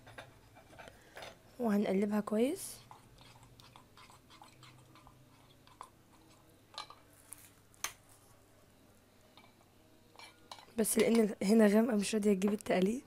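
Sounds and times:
spoon stirring liquid: 2.2 - 7.2.

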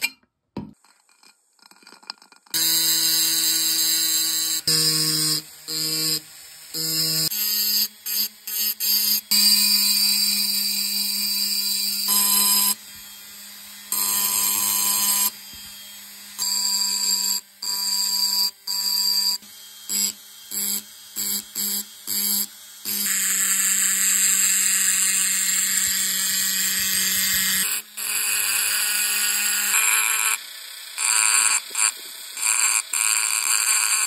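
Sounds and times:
rotary tool grinding glass: 0.8 - 13.0, 13.9 - 15.8, 23.0 - 27.7, 31.0 - 34.0.

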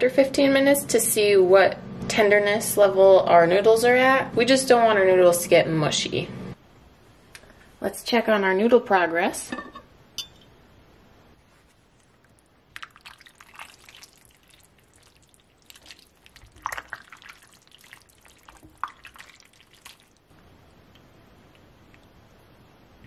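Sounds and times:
spoon stirring thick chili: 12.7 - 20.2.

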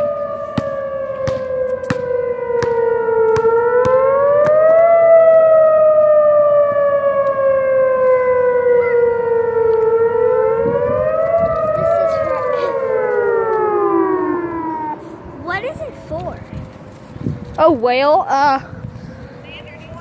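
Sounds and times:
warning siren wailing: 0.0 - 18.2.

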